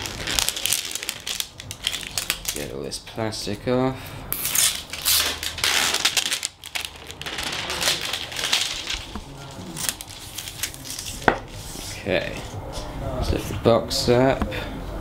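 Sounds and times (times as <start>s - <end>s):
plastic wrapping crinkling: 0.0s - 2.8s, 4.4s - 12.0s.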